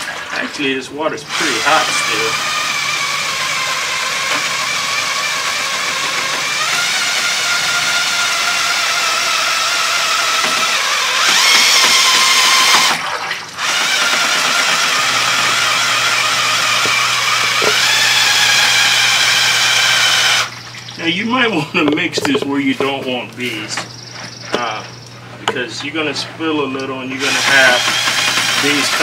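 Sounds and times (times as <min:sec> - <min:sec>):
drill with paddle mixer whining: 0:01.2 - 0:20.7, 0:27.2 - 0:29.0.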